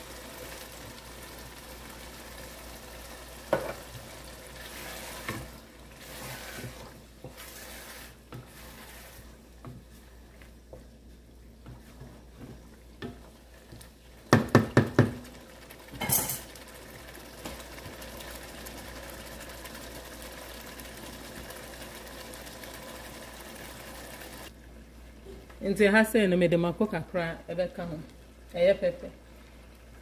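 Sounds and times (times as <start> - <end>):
stew simmering: 0.0 - 25.6
wooden spoon stirring stew: 3.8 - 15.2
spoon knocking on pot: 14.3 - 15.2.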